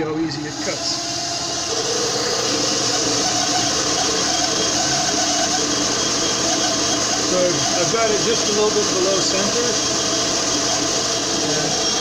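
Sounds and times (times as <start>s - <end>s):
metal lathe humming: 0.0s - 12.0s.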